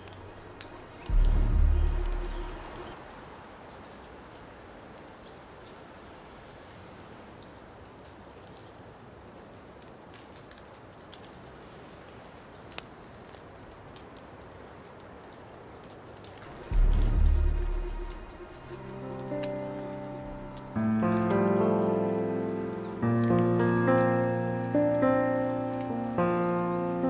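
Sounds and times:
outdoor background noise: 0.0s - 27.0s
faint clicks: 9.8s - 26.9s.

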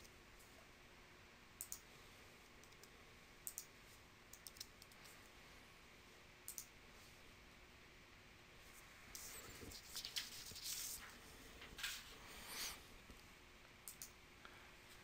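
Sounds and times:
room hiss: 0.0s - 15.0s
keyboard and mouse clicks: 1.6s - 1.8s, 2.6s - 3.7s, 4.3s - 5.2s, 6.5s - 6.7s, 13.8s - 14.2s.

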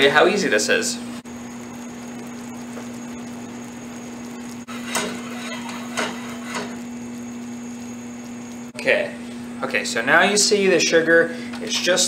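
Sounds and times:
steady hum: 0.0s - 12.0s
syrup bubbling in a saucepan: 0.0s - 12.0s
utensils knocking against pan: 4.7s - 6.8s.

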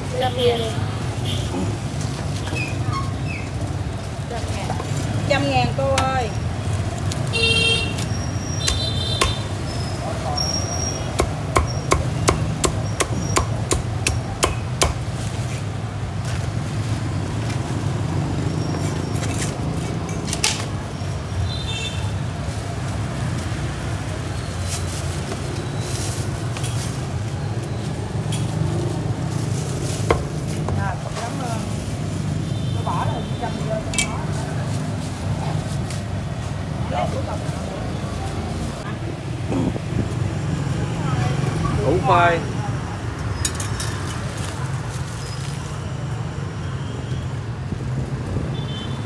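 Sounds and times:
cleaver chopping on wooden block: 8.6s - 9.5s, 11.1s - 15.1s.

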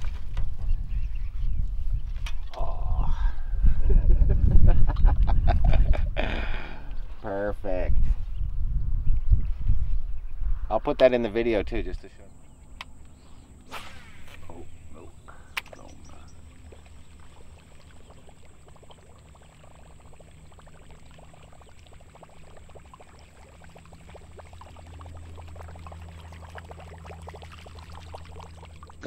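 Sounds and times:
low rumble: 0.0s - 12.8s
water trickling and lapping: 12.6s - 29.0s.

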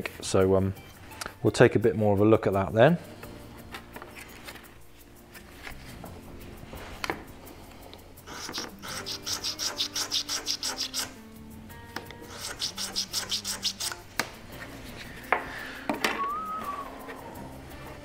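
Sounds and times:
hand tool rasping wood: 8.3s - 11.2s, 12.2s - 14.3s.

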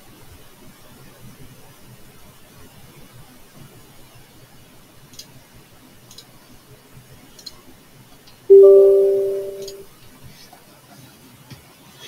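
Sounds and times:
faint mouse clicks: 7.4s - 7.6s
computer alert chime: 8.5s - 9.8s.

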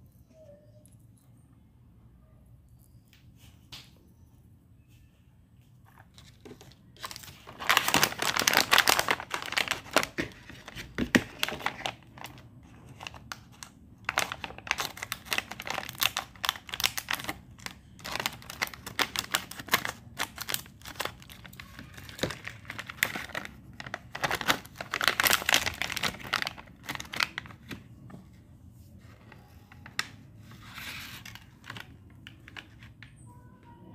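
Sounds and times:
plastic packet crinkling: 6.0s - 27.9s.

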